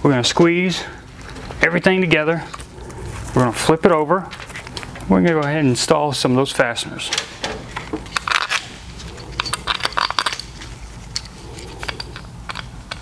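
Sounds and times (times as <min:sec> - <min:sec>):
metal bolts clicking and clinking: 0:07.0 - 0:13.0.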